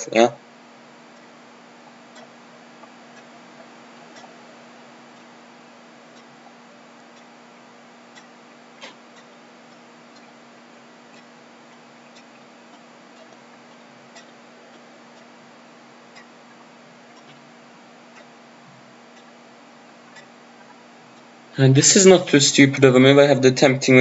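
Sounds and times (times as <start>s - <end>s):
faint regular ticking: 0.0s - 24.0s
steady hiss: 0.0s - 24.0s.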